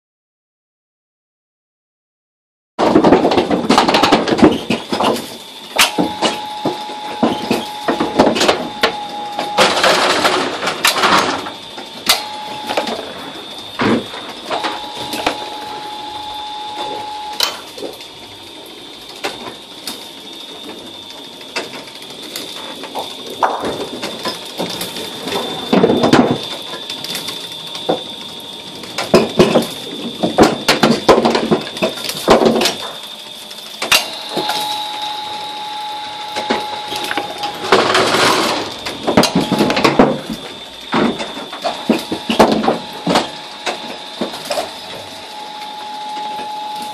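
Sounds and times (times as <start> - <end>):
low hum: 5.3 - 30.3, 32.6 - 46.9
electric motor whining: 5.5 - 17.9, 33.9 - 46.9.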